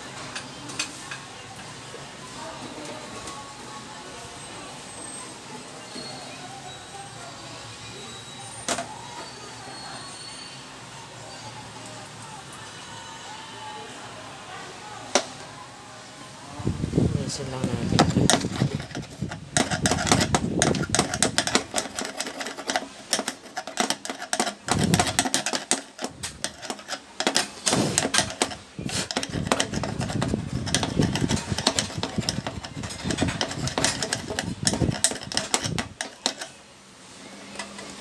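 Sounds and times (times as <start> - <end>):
metal scraping: 17.8 - 36.6
screwdriver rapid clicks: 18.3 - 36.5.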